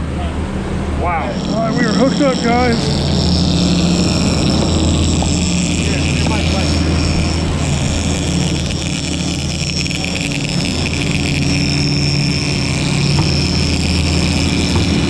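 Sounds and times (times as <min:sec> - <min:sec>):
outboard engines humming: 0:00.0 - 0:15.0
thin high whine: 0:00.0 - 0:15.0
wake water rushing: 0:00.0 - 0:15.0.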